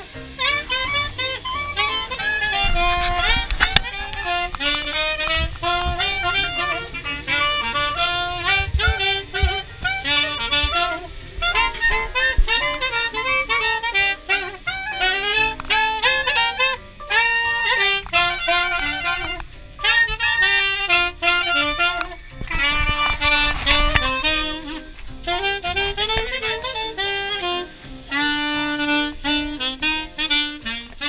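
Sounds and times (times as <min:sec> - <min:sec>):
clarinet and saxophone jazz: 0:00.0 - 0:31.0
low rumble: 0:02.6 - 0:12.9.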